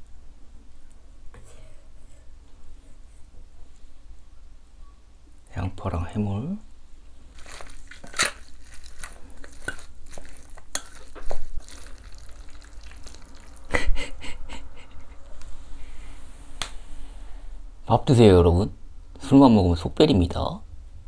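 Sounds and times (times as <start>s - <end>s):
wooden spoon stirring in metal bowl: 7.3s - 13.7s.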